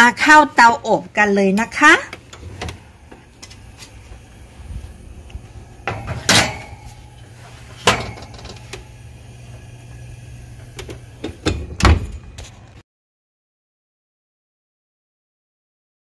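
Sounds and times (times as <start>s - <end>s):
baking sheet clanking on oven rack: 5.8s - 7.0s, 7.8s - 8.6s
oven door shutting thud: 5.8s - 7.0s, 7.8s - 8.8s, 10.6s - 12.4s.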